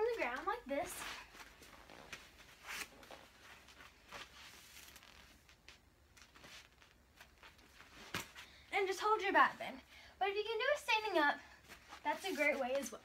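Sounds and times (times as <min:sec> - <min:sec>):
clothing rustling: 0:00.0 - 0:09.7, 0:11.4 - 0:13.0
body shifting on exercise mat: 0:00.1 - 0:08.6.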